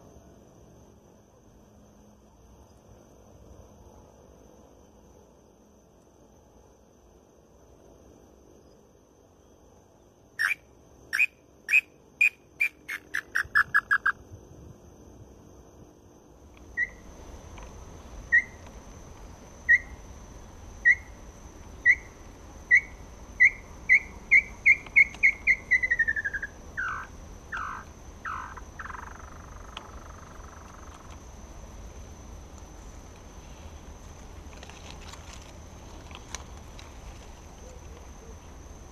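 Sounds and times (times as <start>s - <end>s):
whistled bird lure call: 10.4s - 14.1s, 22.7s - 27.0s.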